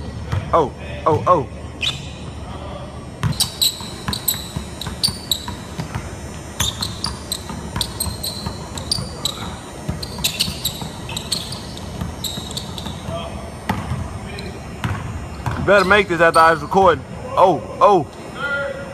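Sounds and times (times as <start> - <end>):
sneakers squeaking: 0.0 - 17.2
basketball dribbling on hardwood: 3.2 - 14.0.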